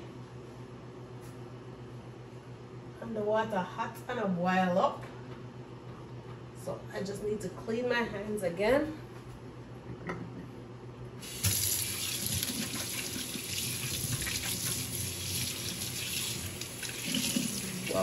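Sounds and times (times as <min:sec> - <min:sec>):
faucet turning on: 0:11.2 - 0:18.0
water running over hands: 0:11.2 - 0:18.0.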